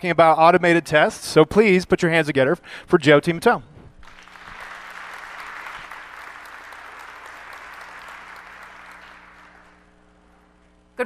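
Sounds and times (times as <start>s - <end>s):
audience applauding: 4.0s - 9.9s.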